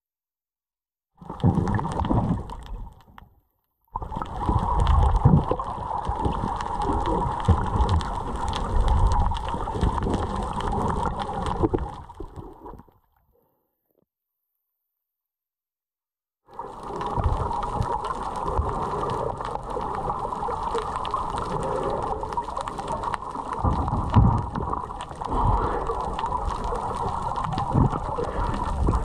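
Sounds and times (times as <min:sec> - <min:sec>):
water rushing and gurgling: 0:04.0 - 0:12.8, 0:16.5 - 0:29.0.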